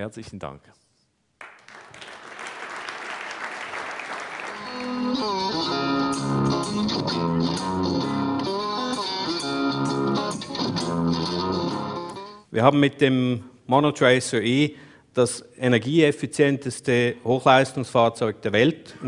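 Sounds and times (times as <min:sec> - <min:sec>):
audience applauding: 0:01.4 - 0:05.9
rhythmic instrumental music: 0:04.4 - 0:12.5.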